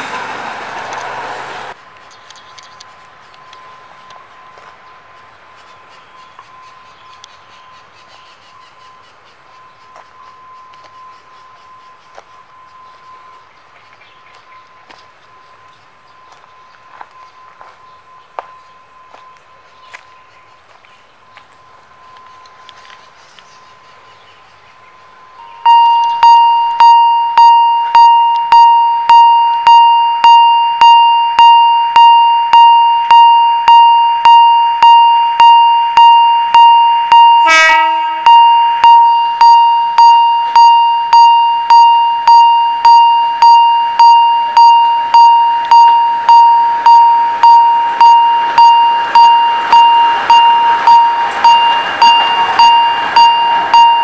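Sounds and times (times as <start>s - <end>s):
train rushing: 0.0s - 2.0s, 34.3s - 54.0s
crossing warning bell ringing: 3.2s - 54.0s
horn blast: 37.1s - 40.5s.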